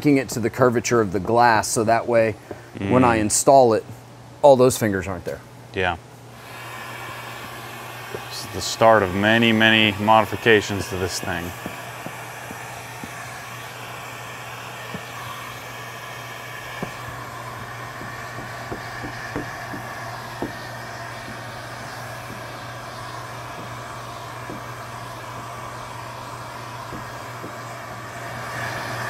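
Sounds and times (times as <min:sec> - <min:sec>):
heat gun blowing: 0:06.3 - 0:29.0.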